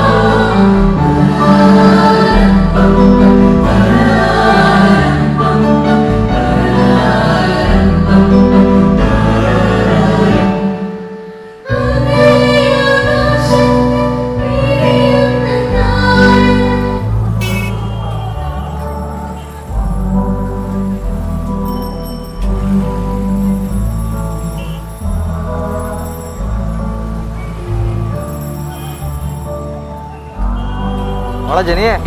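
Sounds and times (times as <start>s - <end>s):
women singing devotional song: 0.0s - 11.0s, 11.6s - 20.2s
church band with bass and guitar: 0.0s - 32.0s.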